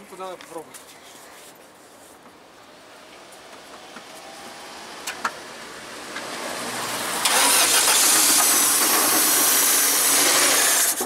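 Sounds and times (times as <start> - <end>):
engine cranking on starter: 7.1 - 11.0.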